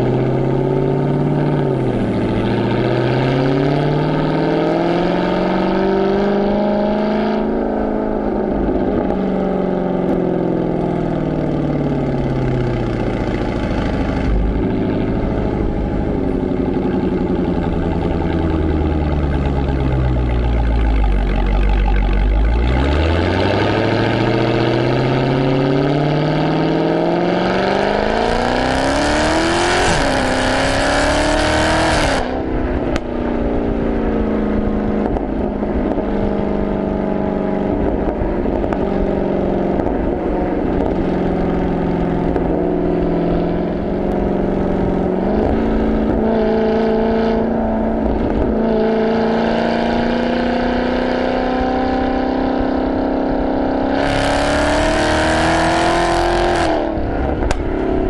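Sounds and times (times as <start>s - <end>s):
car engine accelerating: 0.0s - 58.0s
exhaust pops: 11.4s - 25.2s, 56.6s - 58.0s.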